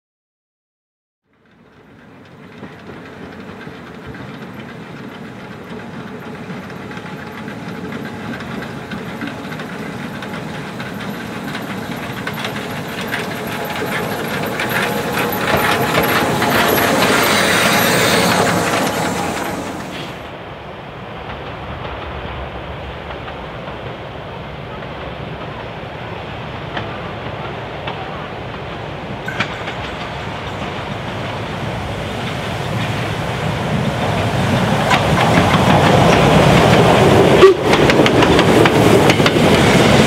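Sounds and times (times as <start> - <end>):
steam locomotive running: 1.4 - 40.0
steam hissing: 5.7 - 20.3.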